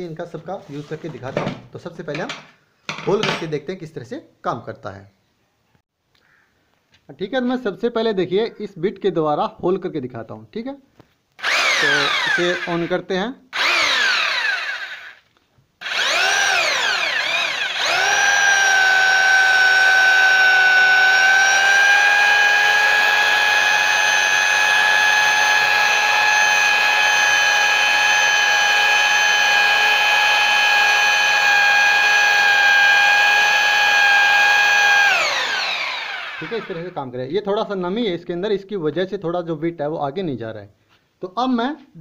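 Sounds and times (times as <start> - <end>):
hammer drill drilling into brick: 11.4 - 12.9, 13.6 - 15.2, 15.8 - 37.0.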